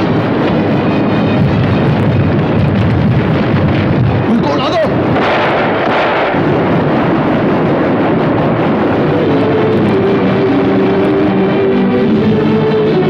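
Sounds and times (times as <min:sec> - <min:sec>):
background music: 0:06.6 - 0:13.0.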